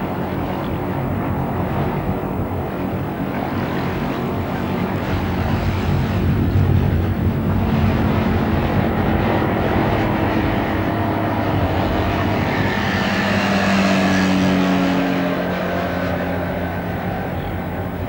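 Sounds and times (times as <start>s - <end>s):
propeller aircraft engine running: 0.0s - 12.8s.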